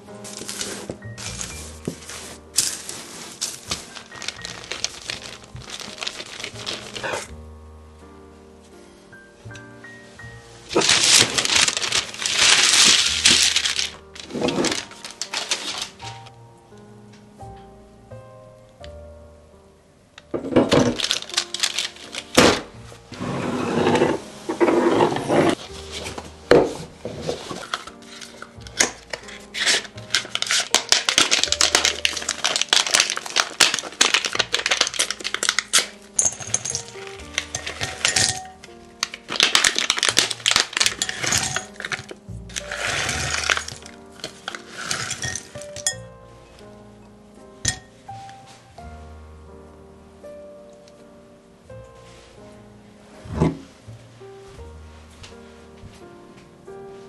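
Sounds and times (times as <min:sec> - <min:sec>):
background music: 0:00.0 - 0:57.0
chocolate bars snapping: 0:03.6 - 0:07.3, 0:10.8 - 0:16.2, 0:20.7 - 0:22.8, 0:27.6 - 0:45.9
chunks clinking into glass bowl: 0:36.2 - 0:38.6.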